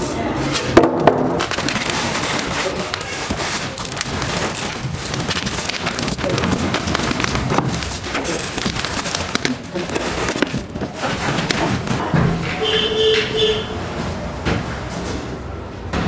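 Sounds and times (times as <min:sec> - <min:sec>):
cardboard rustling and scraping: 0:00.8 - 0:12.8
bubble wrap crackling: 0:00.9 - 0:12.0.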